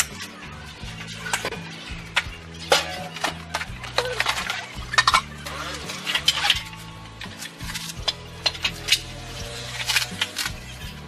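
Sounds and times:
background music: 0.0 - 11.0
metal parts knocking on floor: 1.2 - 5.4.

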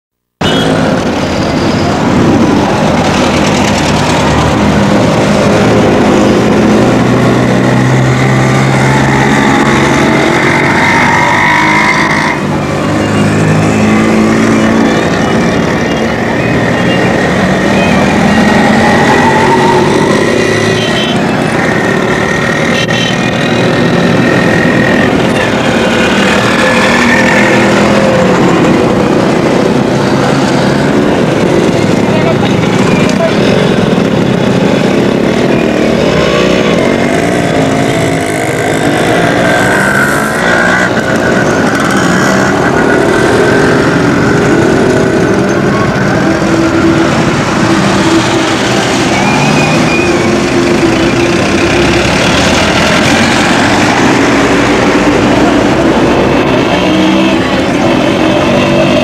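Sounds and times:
voices: 52.8 - 59.0.

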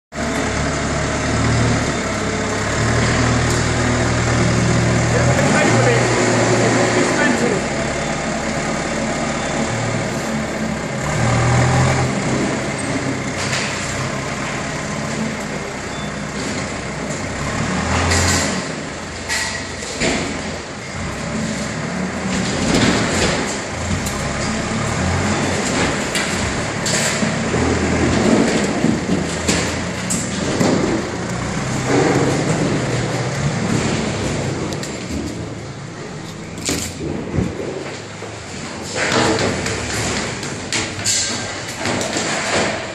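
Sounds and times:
diesel engine running under load: 0.1 - 42.9
debris clattering and crashing: 21.2 - 42.9.

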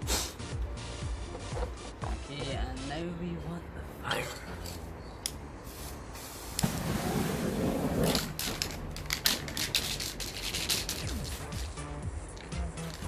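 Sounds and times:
spray-paint can rattling: 8.0 - 11.7.

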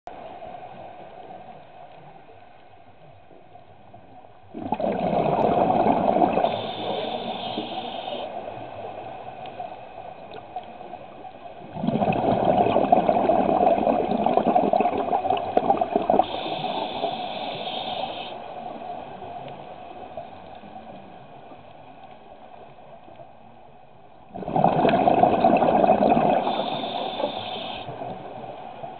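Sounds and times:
scuba regulator bubbles underwater: 4.5 - 9.6, 10.3 - 21.0, 24.3 - 28.9.

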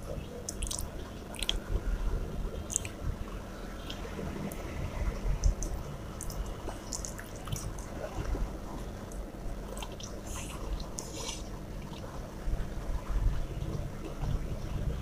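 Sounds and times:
wet chewing: 0.4 - 1.7, 2.6 - 3.0, 5.4 - 7.9, 9.7 - 12.1.

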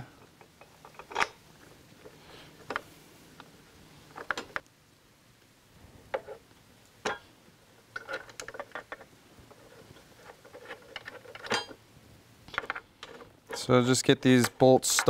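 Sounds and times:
small metal bolts clicking: 7.9 - 9.1.

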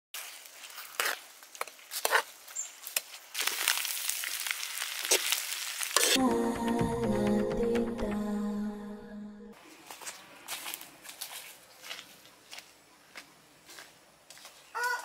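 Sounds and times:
food sizzling in a wok: 3.3 - 6.2
music: 6.2 - 9.6.

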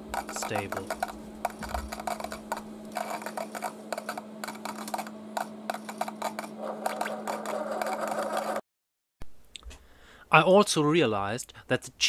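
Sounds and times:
low hum: 0.0 - 8.6.

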